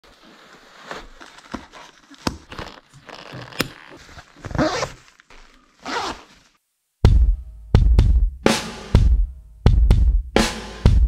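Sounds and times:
rustling handling noise: 0.0 - 6.6.

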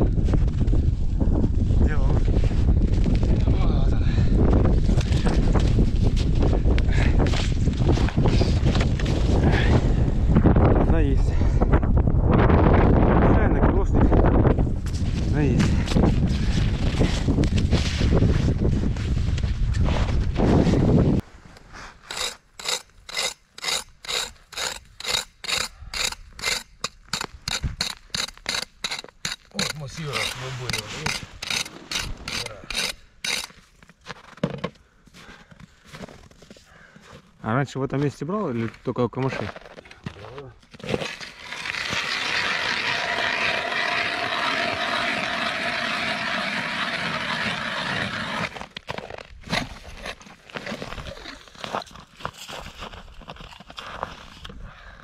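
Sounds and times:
ice auger drilling: 22.1 - 33.6, 40.9 - 48.7
footsteps crunching in snow: 48.2 - 54.5.

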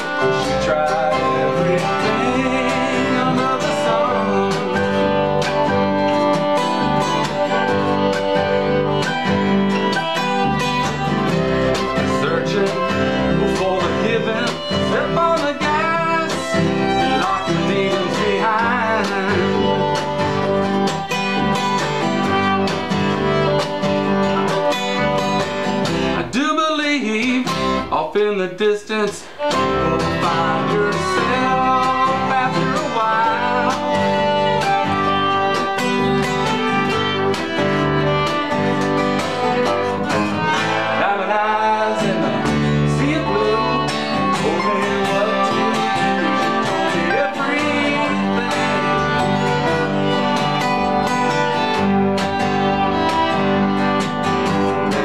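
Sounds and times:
acoustic guitar: 0.0 - 55.0
fiddle: 0.0 - 55.0
mandolin: 0.0 - 55.0
upright bass: 0.0 - 55.0.

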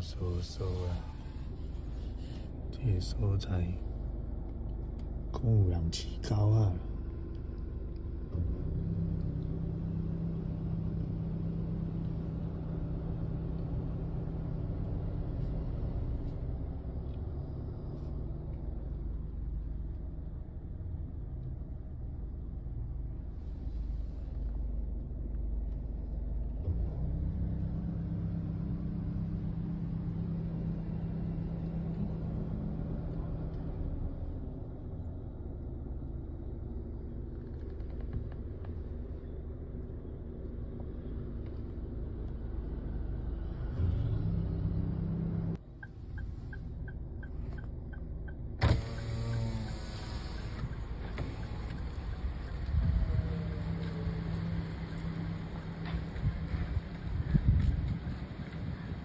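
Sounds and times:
road rumble: 0.0 - 59.0
vehicle engine hum: 0.0 - 59.0.

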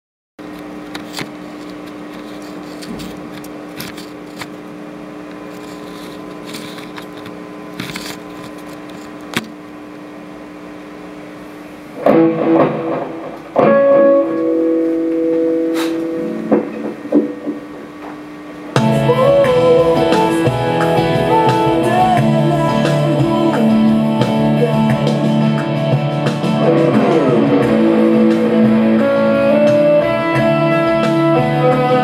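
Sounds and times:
electric hum: 0.4 - 32.0
electric bass plucked notes: 12.0 - 18.0, 18.6 - 32.0.

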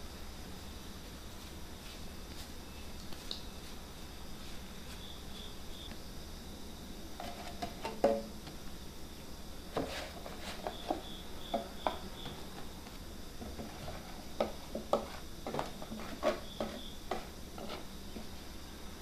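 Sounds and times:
faint insect chirps: 0.0 - 19.0
dough knocking in metal pan: 14.4 - 17.8.

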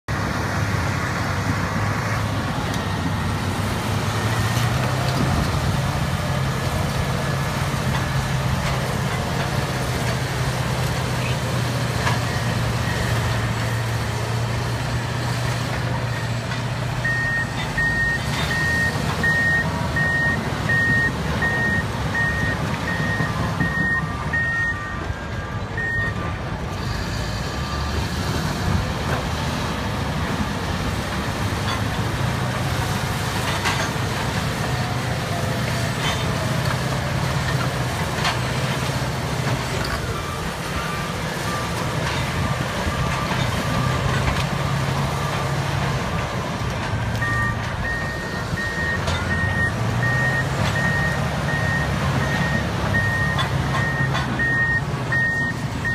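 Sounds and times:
bulldozer diesel engines droning: 0.0 - 55.9.

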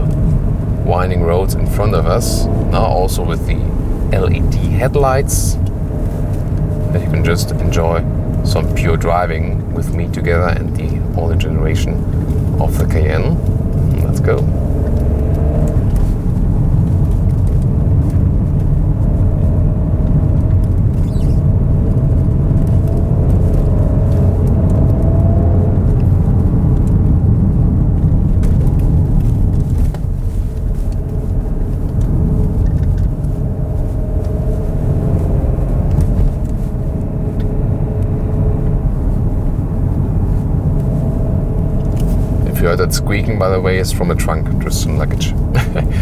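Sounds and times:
car engine revving: 0.0 - 46.0
road and tyre rumble: 0.0 - 46.0
luggage squeaking: 21.0 - 21.4.

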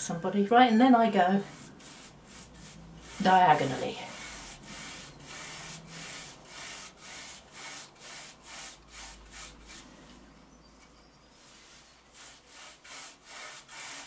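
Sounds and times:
paintbrush scrubbing cane seat: 1.5 - 9.9, 11.4 - 14.0.

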